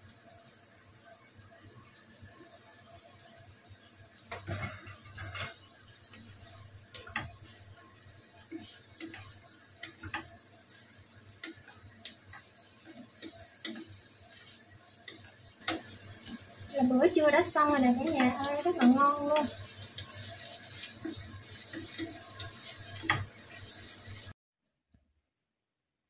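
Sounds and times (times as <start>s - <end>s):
faint sizzle: 0.0s - 24.4s
spatula knocking and scraping pan: 4.3s - 24.3s.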